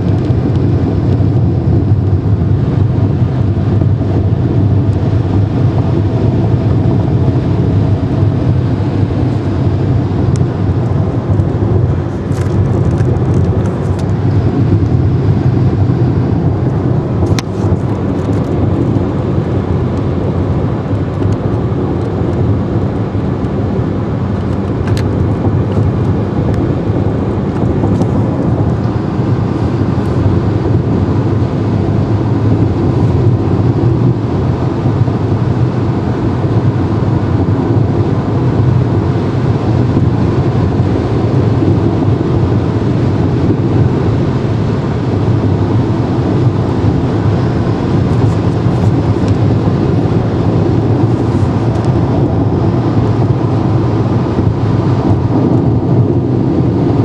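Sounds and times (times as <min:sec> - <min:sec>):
car cabin road drone: 0:00.0 - 0:57.0
wind rush: 0:00.0 - 0:57.0.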